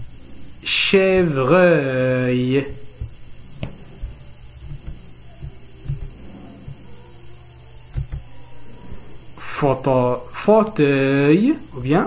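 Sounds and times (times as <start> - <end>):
low electrical hum: 0.0 - 12.0
faint soft thumps: 2.8 - 6.9.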